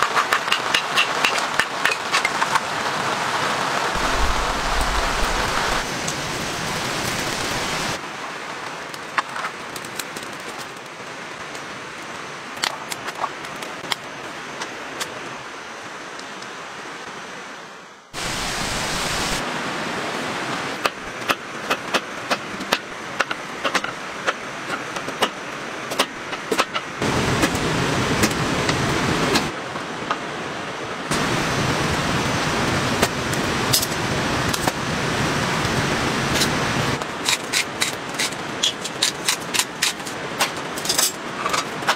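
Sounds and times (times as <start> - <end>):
steady rain hiss: 0.0 - 41.9.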